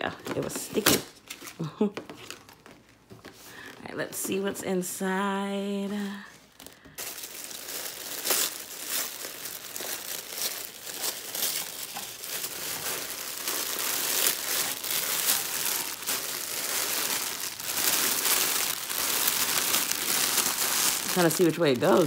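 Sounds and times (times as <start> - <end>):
tissue paper rustling: 5.8 - 22.0
plastic bag crinkling: 5.9 - 22.0.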